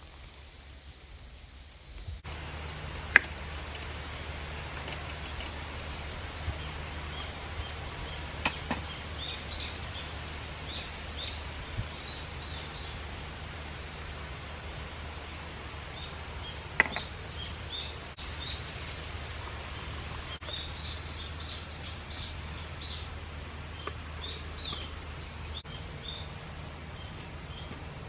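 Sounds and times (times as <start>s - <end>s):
small birds chirping: 6.3s - 13.2s, 15.0s - 28.0s.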